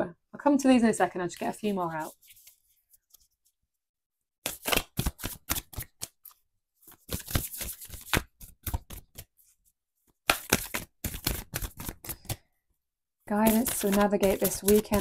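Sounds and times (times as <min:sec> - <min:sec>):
cards being shuffled: 0:02.0 - 0:03.4, 0:04.4 - 0:09.3, 0:10.2 - 0:12.4, 0:13.3 - 0:15.0.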